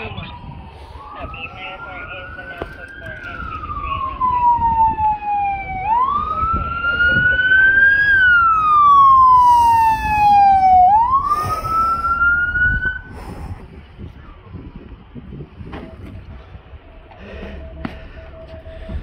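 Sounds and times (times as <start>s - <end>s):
police siren wailing: 0.0s - 13.2s.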